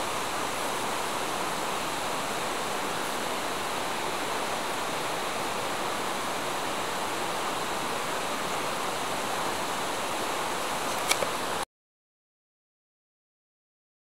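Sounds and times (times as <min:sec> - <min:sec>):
steady rushing hiss: 0:00.0 - 0:11.6
sharp click: 0:10.9 - 0:11.3.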